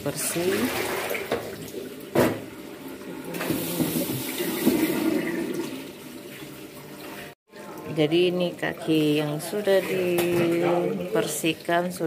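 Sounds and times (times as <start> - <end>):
water sloshing in wok: 0.0 - 12.0
tap water splashing into wok: 0.3 - 2.5.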